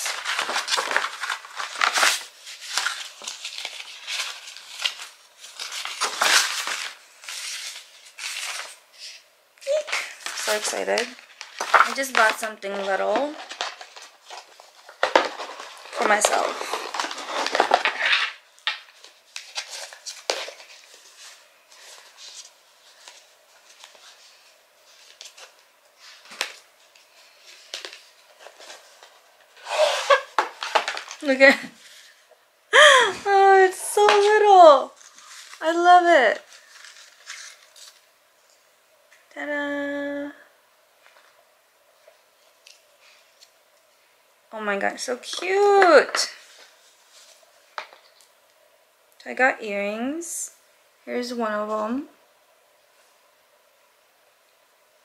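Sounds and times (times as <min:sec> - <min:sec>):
gift box being unwrapped: 0:00.0 - 0:32.2, 0:33.8 - 0:38.1
paper packaging rustling: 0:00.0 - 0:38.6.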